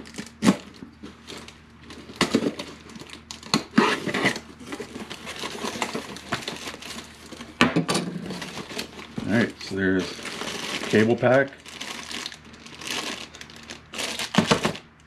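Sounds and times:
plastic wrapping rustling: 0.0 - 15.0
cardboard tearing scrapes: 2.1 - 7.4
knife slitting packing tape: 3.4 - 4.4.

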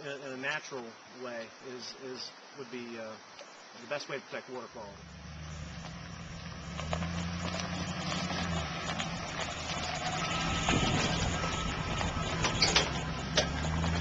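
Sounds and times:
van engine humming: 4.9 - 14.0
tyres rolling over gravel: 5.1 - 14.0.

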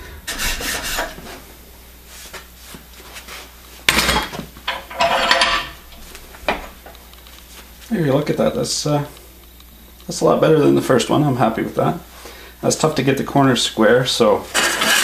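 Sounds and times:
metal clattering and scraping: 4.1 - 5.8.

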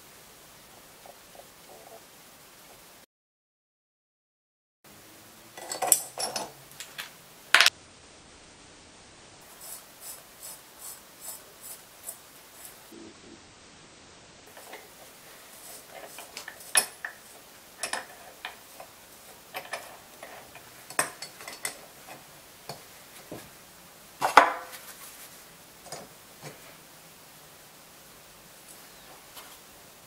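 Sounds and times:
wrenches clinking on metal nuts: 5.6 - 7.7, 15.7 - 22.2.

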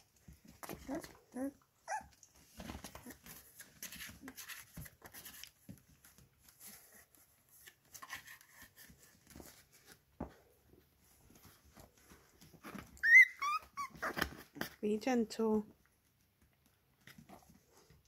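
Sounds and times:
puppy scratching and rustling paper: 2.1 - 10.1.

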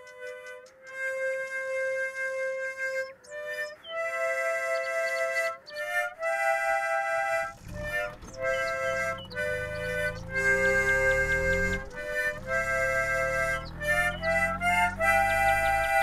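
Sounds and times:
slow melody of held notes: 0.0 - 16.0
low bass part: 7.4 - 16.0.

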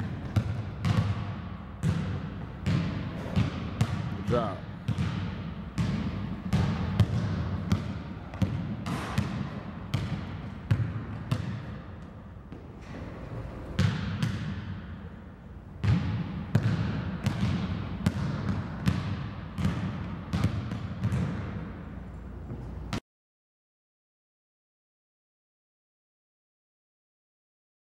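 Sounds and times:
basketball bouncing on hardwood: 0.0 - 4.1, 4.9 - 11.8, 13.8 - 14.8, 15.8 - 21.6.

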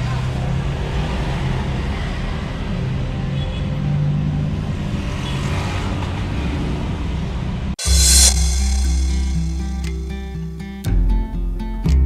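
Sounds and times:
street traffic noise: 0.0 - 8.3.

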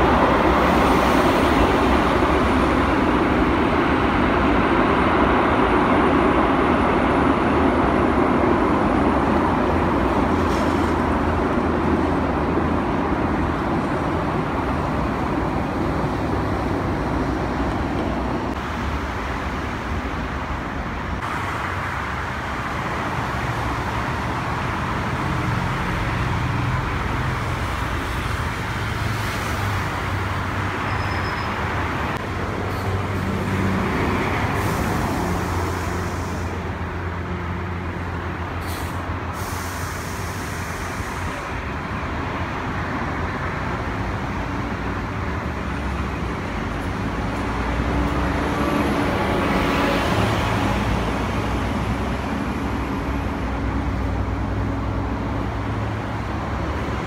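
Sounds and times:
jet aircraft engines rumbling: 0.0 - 57.0
road traffic: 0.0 - 57.0.

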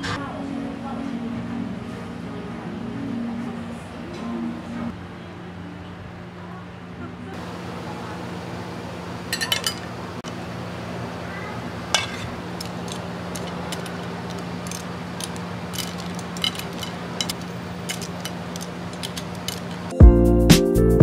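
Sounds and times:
metal tongs clinking on pan and plate: 9.3 - 9.9, 11.9 - 19.9.

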